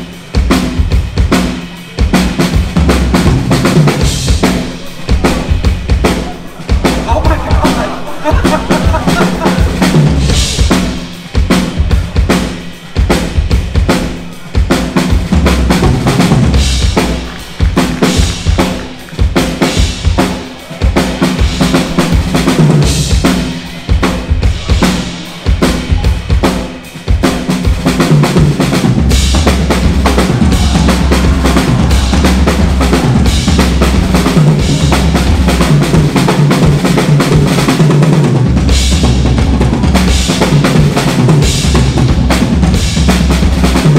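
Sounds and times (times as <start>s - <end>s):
drums played fast: 0.0s - 43.9s
bass drum: 2.6s - 12.3s, 27.7s - 43.9s.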